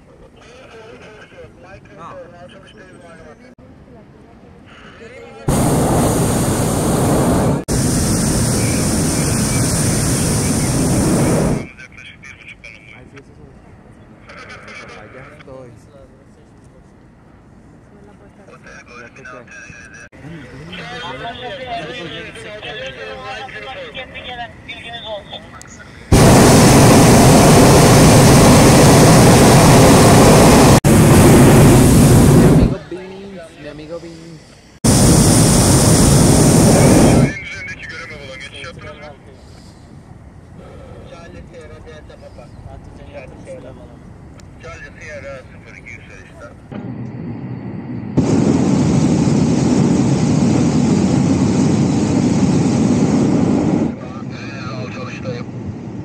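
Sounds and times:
propane burner blast: 5.5 - 11.7, 26.1 - 32.8, 34.8 - 37.4, 46.7 - 54.2.

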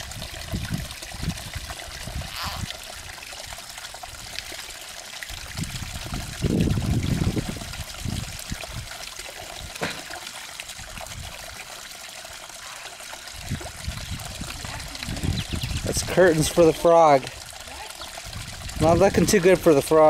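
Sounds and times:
water trickling: 0.0 - 20.0.

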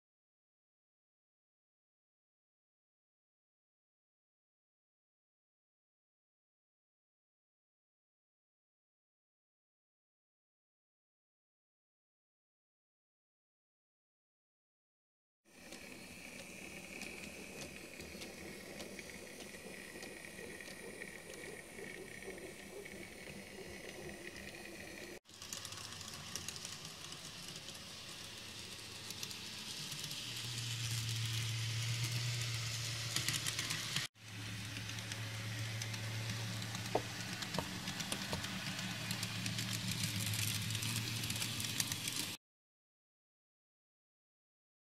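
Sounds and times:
model locomotive motor whining: 15.5 - 42.4
wheels clicking over track: 15.5 - 42.4
steady low hum: 15.6 - 25.2.

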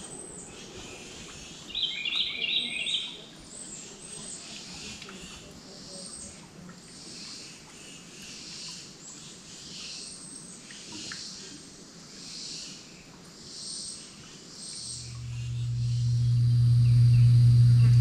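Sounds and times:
low steady hum: 15.0 - 18.0.

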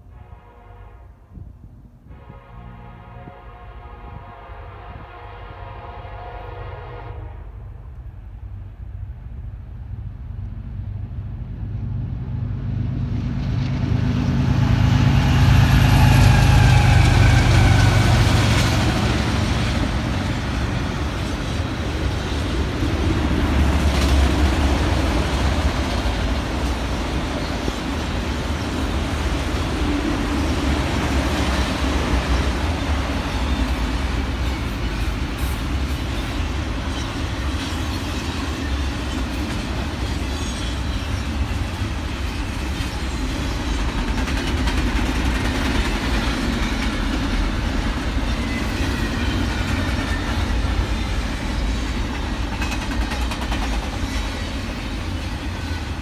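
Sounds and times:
diesel locomotive engine rumble: 0.0 - 56.0
train cars rolling rumble: 7.7 - 56.0
train clank: 31.4 - 56.0.

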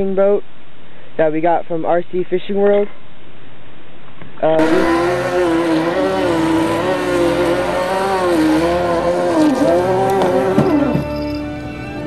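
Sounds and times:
model boat motor whining: 4.6 - 12.0.

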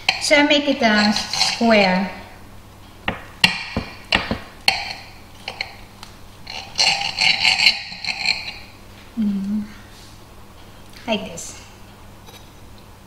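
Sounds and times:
knife scraping through cake: 0.8 - 1.7, 6.4 - 8.7.

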